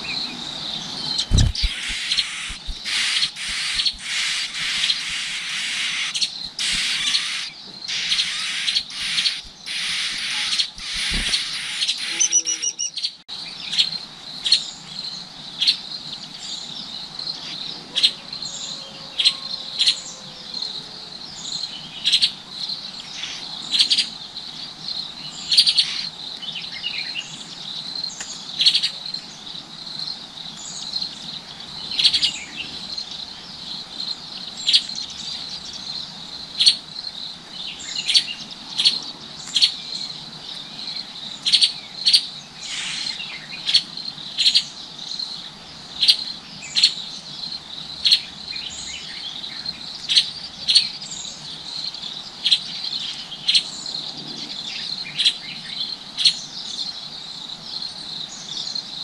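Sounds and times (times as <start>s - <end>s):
sharp bird chirps: 1.1s - 13.2s
high-pitched insect trill: 1.2s - 13.0s.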